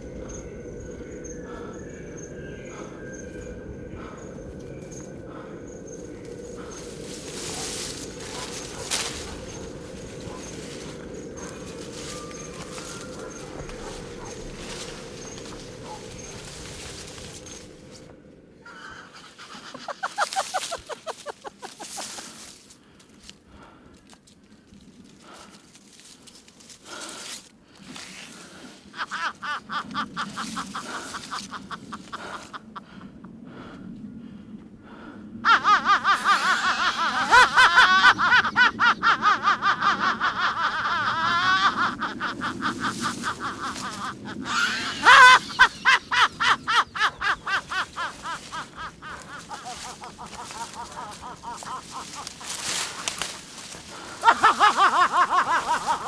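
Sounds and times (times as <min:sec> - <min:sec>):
high-pitched laughter: 0:18.7 - 0:22.3, 0:28.9 - 0:32.7, 0:35.4 - 0:56.0.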